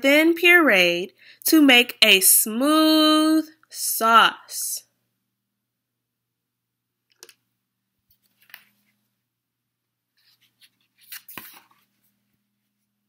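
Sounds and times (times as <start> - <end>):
cardboard pages turning: 8.1 - 9.0, 10.2 - 12.9.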